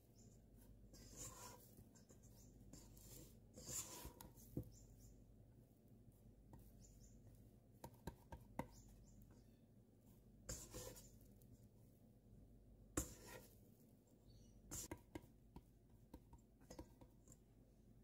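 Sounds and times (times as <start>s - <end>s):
dough scraper scraping a bowl: 0.9s - 2.1s, 2.7s - 4.4s, 10.5s - 11.1s.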